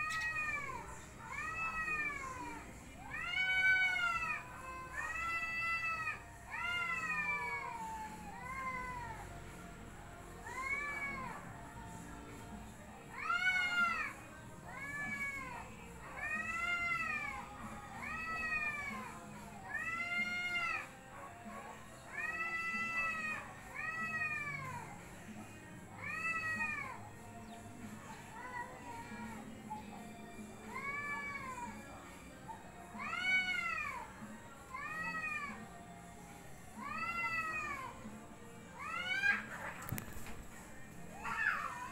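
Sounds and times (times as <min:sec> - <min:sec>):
cats yowling: 0:00.0 - 0:09.2, 0:10.4 - 0:11.5, 0:13.1 - 0:25.0, 0:26.0 - 0:27.0, 0:28.3 - 0:29.9, 0:30.6 - 0:35.6, 0:36.8 - 0:38.0, 0:38.8 - 0:40.0, 0:40.9 - 0:41.9.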